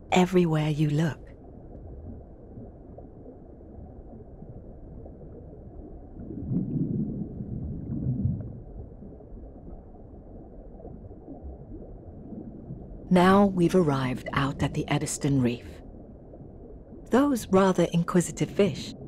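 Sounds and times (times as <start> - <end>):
underwater low rumble: 1.0 - 19.0
bubbling burble: 1.3 - 13.1.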